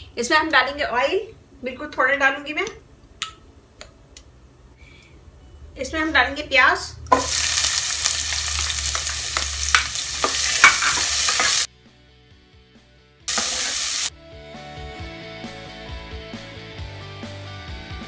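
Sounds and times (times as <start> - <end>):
soft background music: 3.9 - 18.0
onion sizzling in hot oil: 7.1 - 11.7, 13.3 - 14.1.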